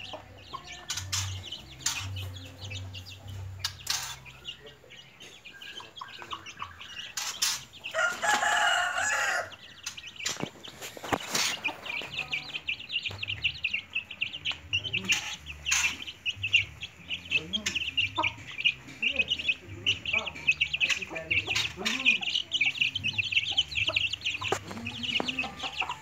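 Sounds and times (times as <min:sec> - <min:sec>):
chicks peeping: 0:00.0 - 0:26.0
hen clucking: 0:00.0 - 0:26.0
rooster crowing: 0:07.9 - 0:09.6.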